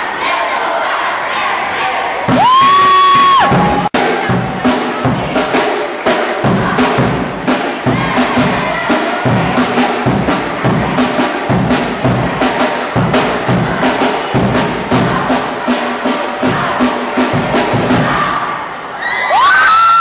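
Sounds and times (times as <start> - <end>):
crowd noise: 0.0 - 20.0
crowd cheering and screaming: 2.3 - 4.0, 18.9 - 20.0
percussion-driven dance music: 2.3 - 18.5.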